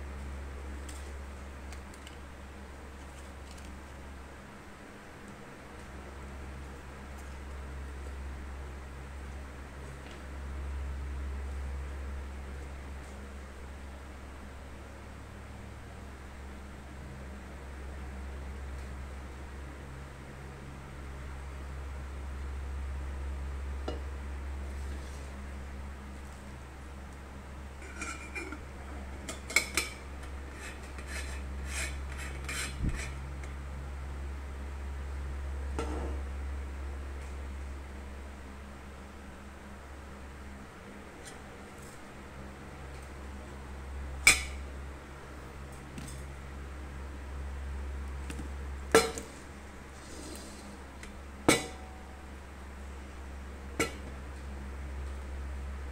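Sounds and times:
steady low hum: 0.0s - 55.9s
lid scraping: 27.8s - 33.2s.

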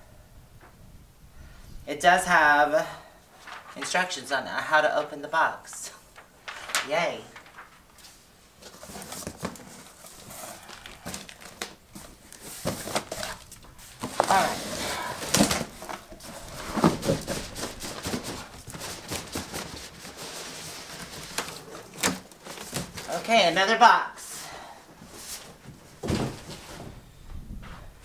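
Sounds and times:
cardboard flaps rustling and scraping: 6.4s - 23.2s, 25.0s - 28.0s.

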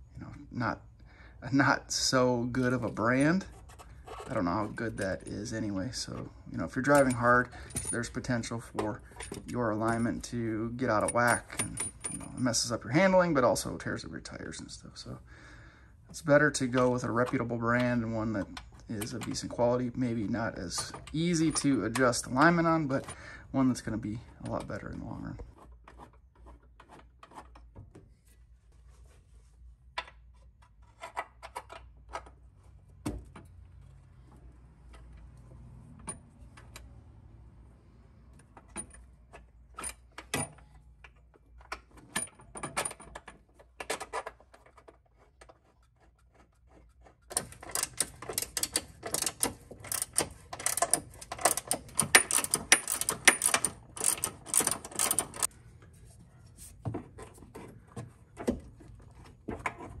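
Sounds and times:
hand ratchet clicking: 47.2s - 55.5s.

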